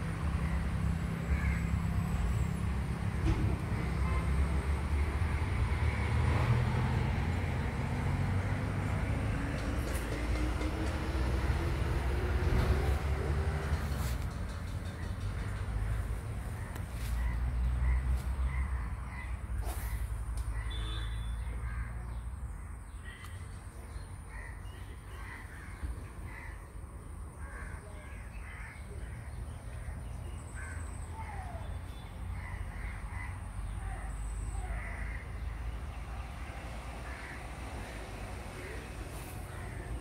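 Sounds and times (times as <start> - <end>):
crows cawing: 1.3 - 1.7, 16.6 - 19.4, 24.3 - 26.7, 27.4 - 30.0, 30.6 - 31.4, 32.3 - 35.7, 37.0 - 37.9.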